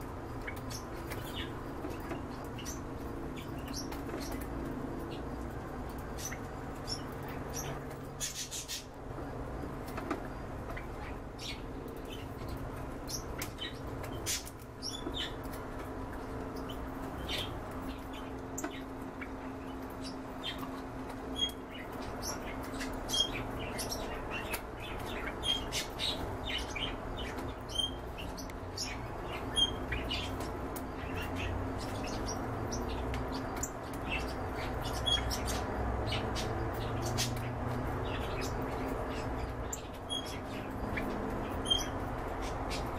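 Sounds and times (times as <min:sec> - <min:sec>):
canaries chirping: 0:00.2 - 0:09.0, 0:09.9 - 0:42.9
birds rustling in cage: 0:00.2 - 0:42.9.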